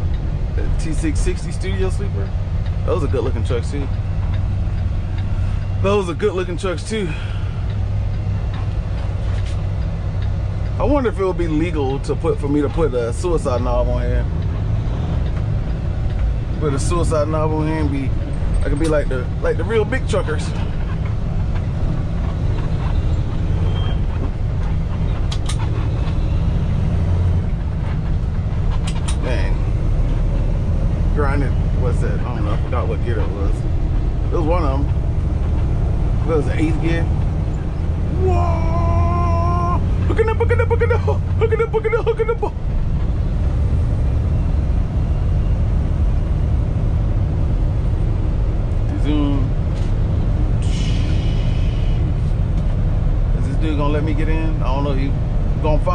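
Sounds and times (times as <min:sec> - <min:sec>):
diesel truck engine running: 0:00.0 - 0:55.9
road noise: 0:00.0 - 0:55.9.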